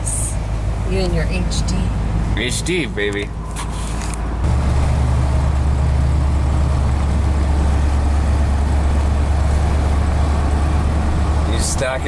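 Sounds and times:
car engine and road drone: 0.0s - 12.0s.

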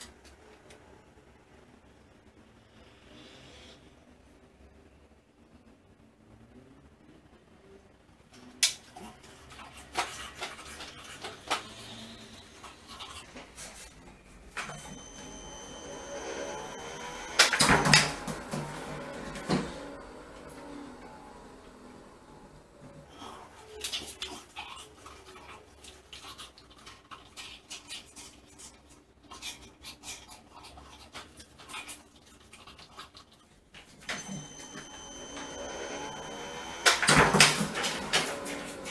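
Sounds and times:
motor whine: 14.8s - 23.0s.

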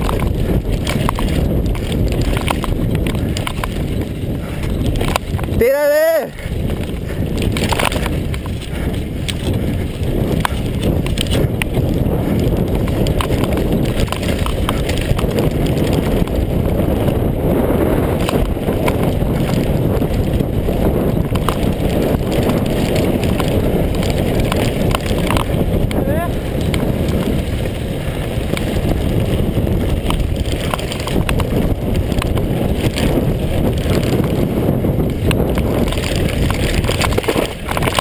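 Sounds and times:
bike rattling and knocking: 0.0s - 38.0s
tyre and wind rumble: 0.0s - 38.0s.

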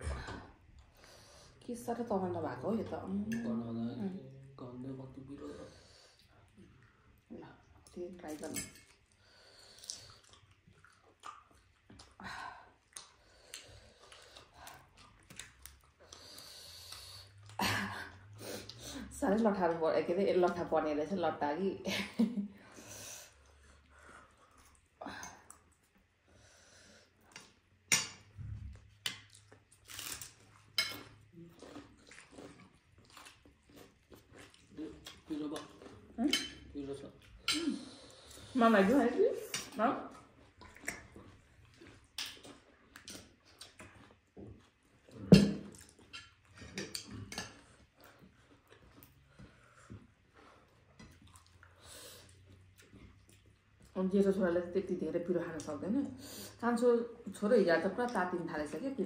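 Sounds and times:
people chewing noodles: 0.0s - 1.7s, 2.8s - 19.1s, 22.5s - 54.5s
quiet eating sounds: 0.0s - 59.0s
cutlery clinking on plates: 45.3s - 47.7s.

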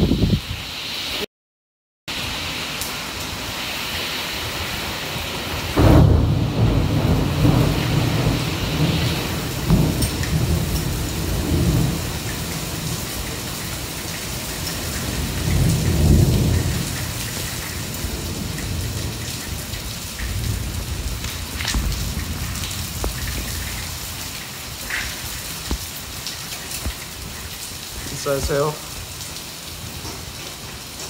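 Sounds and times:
heavy rain pouring: 2.1s - 31.0s
thunder rumbling: 5.5s - 29.1s.

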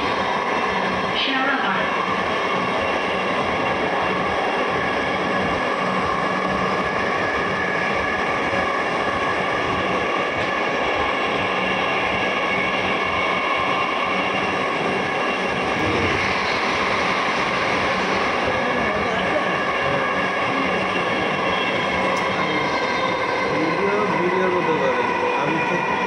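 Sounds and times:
electric train whine: 0.0s - 26.0s
passing train: 0.0s - 26.0s
wheels hissing on rail: 12.3s - 24.8s.

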